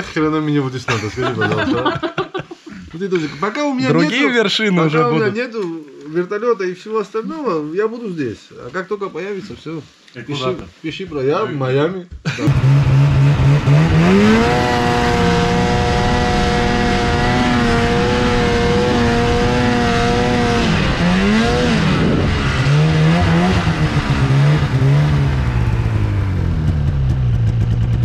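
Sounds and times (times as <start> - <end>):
snowmobile engine revving: 12.4 - 28.0.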